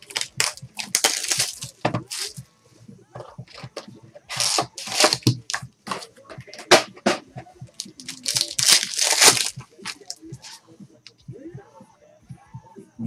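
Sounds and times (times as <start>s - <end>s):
wrapper tearing and crinkling: 0.0s - 2.4s, 3.5s - 6.0s, 7.8s - 10.6s.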